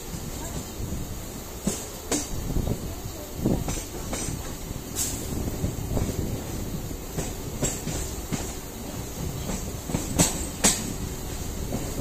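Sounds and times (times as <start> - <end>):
train rumbling: 0.0 - 12.0
wheels clacking on track: 0.0 - 12.0.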